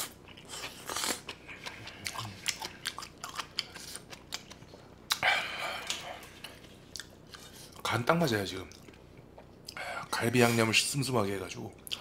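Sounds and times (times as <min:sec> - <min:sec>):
close chewing: 0:00.3 - 0:05.2.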